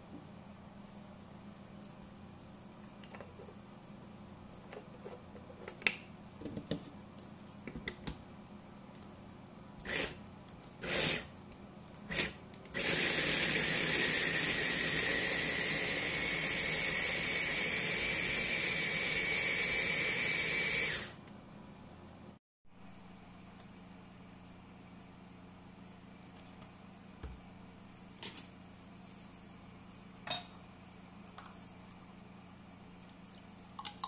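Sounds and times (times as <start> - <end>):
food chopper motor whining: 10.8 - 11.3, 12.1 - 21.2.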